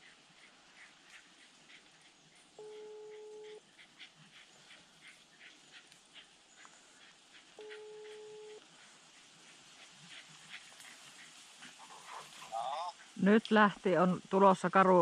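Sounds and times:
distant dog yapping: 7.6 - 8.6.

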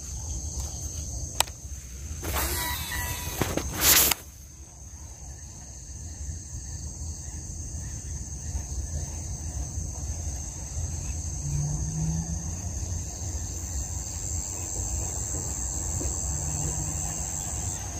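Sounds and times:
high-pitched insect drone: 2.2 - 4.2
microphone handling noise: 3.3 - 4.3.

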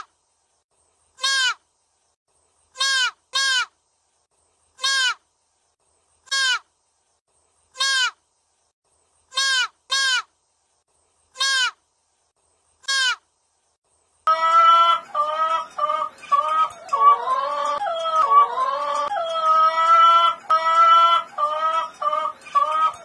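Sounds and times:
chickens clucking: 14.3 - 23.0.

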